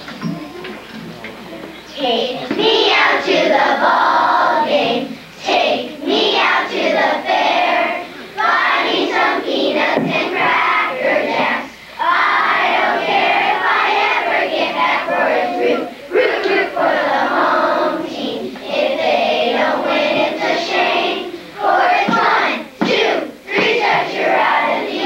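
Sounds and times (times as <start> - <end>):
children singing together: 0.0 - 25.0.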